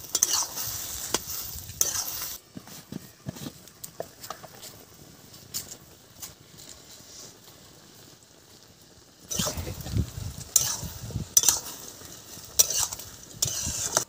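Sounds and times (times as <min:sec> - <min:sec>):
spatula stirring in metal pan: 0:00.0 - 0:02.4, 0:09.3 - 0:14.0
vegetables frying: 0:00.0 - 0:02.4, 0:03.9 - 0:14.0.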